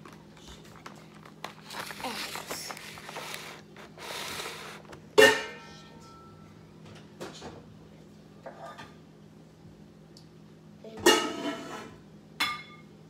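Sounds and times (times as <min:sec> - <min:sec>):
dish clanking on a counter: 0:11.0 - 0:12.8.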